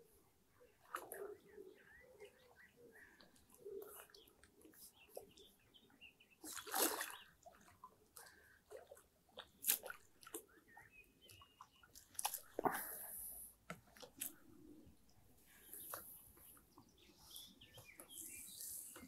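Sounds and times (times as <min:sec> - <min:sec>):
fish splashing in water: 0:06.4 - 0:07.7.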